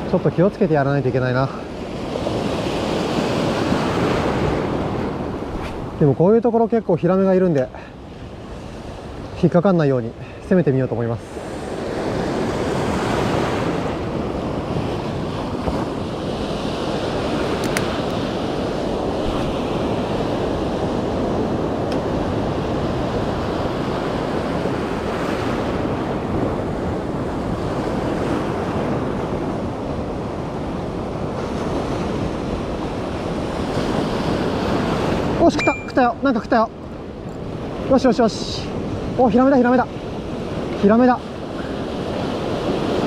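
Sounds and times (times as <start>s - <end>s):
shallow surf washing: 0.0s - 43.0s
wind on microphone: 1.7s - 6.2s.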